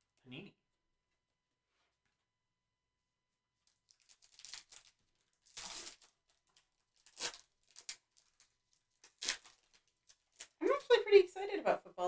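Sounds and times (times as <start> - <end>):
plastic wrapping torn and crinkled: 3.6 - 10.9.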